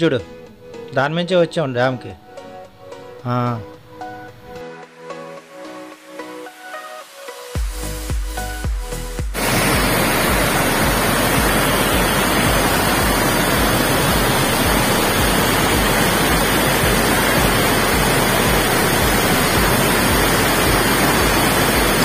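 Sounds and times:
water rushing from dam: 0:09.4 - 0:22.0.

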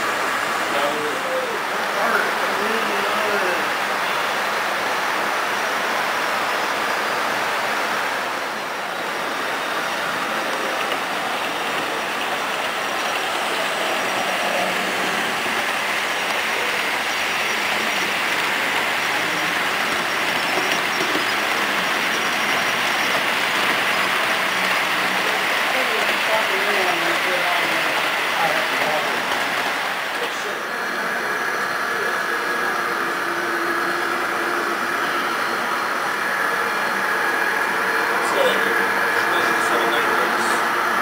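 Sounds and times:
model train wheels rattling: 0:10.2 - 0:30.2.

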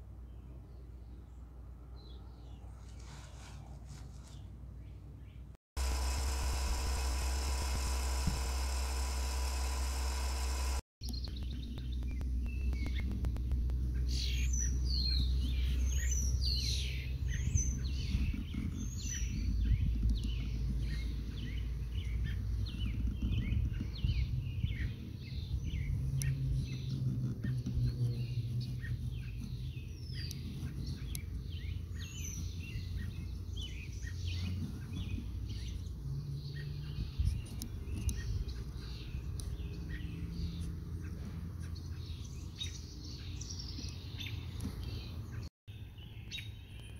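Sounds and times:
birds singing and chirping: 0:14.0 - 0:46.9.

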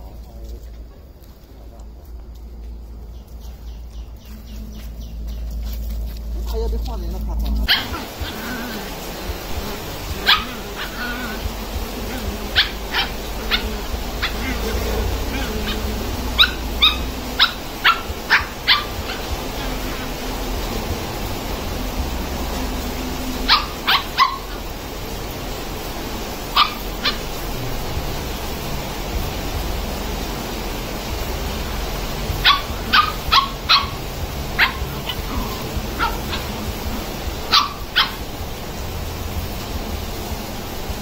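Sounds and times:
background noise: 0:00.0 - 0:41.0
puppies yipping and barking: 0:07.3 - 0:39.1.

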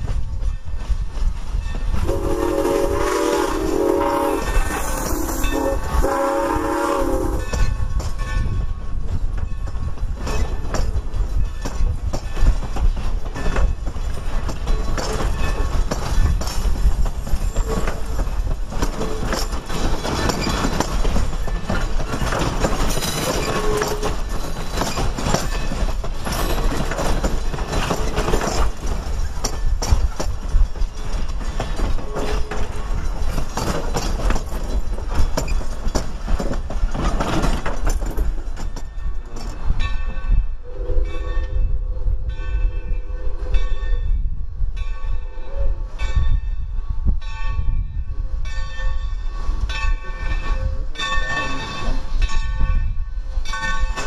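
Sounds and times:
train coaches rumbling past: 0:00.0 - 0:54.0
wheels clicking over rail joints: 0:07.4 - 0:40.2
wheel squeals: 0:19.0 - 0:27.0.

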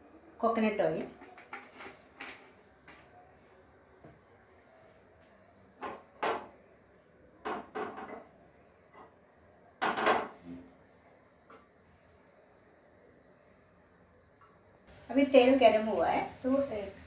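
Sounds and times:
kitchenware knocking and clattering: 0:07.4 - 0:08.3, 0:09.8 - 0:10.4.

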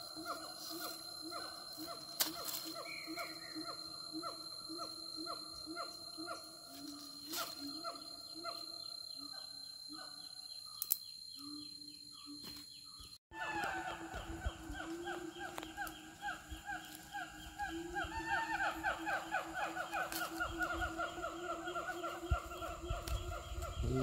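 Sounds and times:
wild animal calling: 0:13.3 - 0:24.0.

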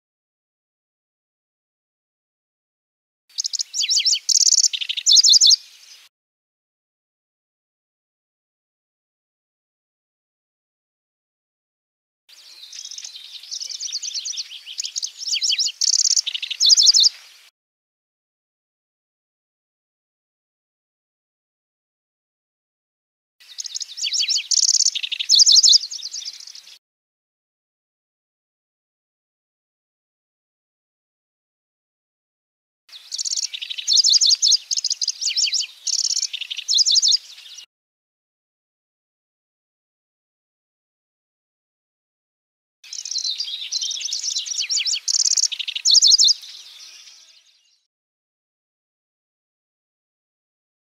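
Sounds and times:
bird singing rapid trills: 0:03.4 - 0:05.6, 0:12.4 - 0:17.1, 0:23.4 - 0:26.8, 0:32.9 - 0:37.7, 0:42.9 - 0:47.9.

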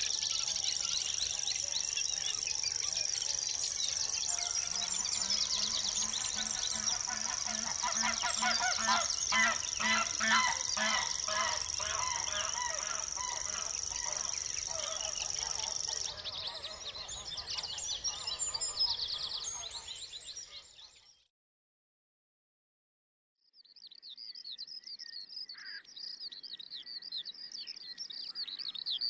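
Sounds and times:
small birds chirping: 0:00.0 - 0:21.2
geese honking: 0:04.0 - 0:16.7.

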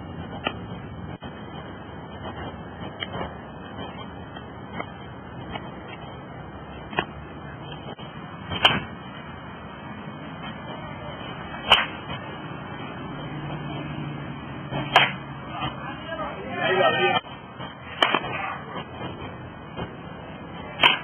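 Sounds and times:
metal bat hitting balls: 0:08.5 - 0:08.9, 0:11.6 - 0:12.1, 0:14.7 - 0:15.3, 0:18.0 - 0:18.3, 0:20.8 - 0:21.0.

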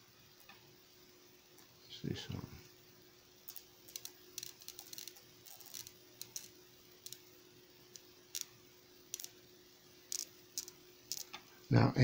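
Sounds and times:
faint steady hum: 0:00.0 - 0:12.0
high-voltage sparks snapping: 0:03.2 - 0:11.8.

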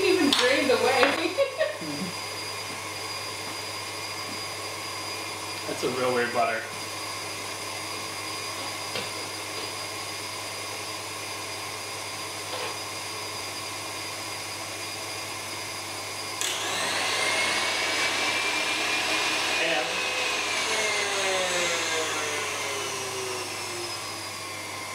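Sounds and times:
stand mixer motor whine: 0:00.0 - 0:24.9.

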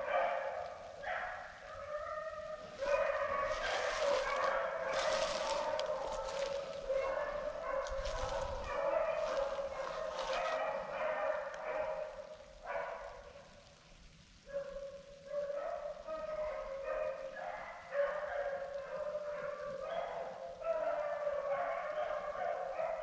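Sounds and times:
beagles baying: 0:00.0 - 0:13.6.

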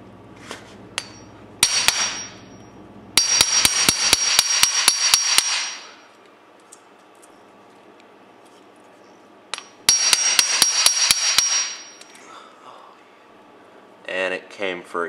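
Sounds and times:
hammer striking impact driver: 0:03.2 - 0:05.9, 0:09.6 - 0:12.0.

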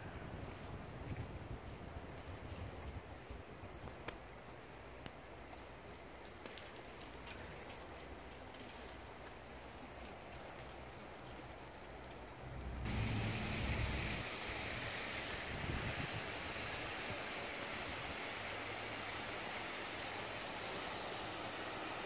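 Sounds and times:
wind buffeting microphone: 0:00.0 - 0:04.1, 0:12.5 - 0:18.2
low hiss: 0:03.4 - 0:22.0.

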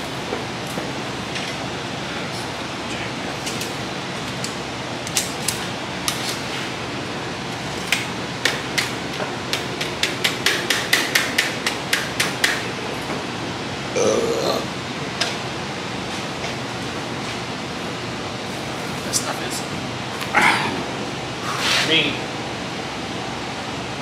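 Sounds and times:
steady background hiss: 0:00.0 - 0:24.0
hammer striking sheet steel: 0:08.4 - 0:12.6.

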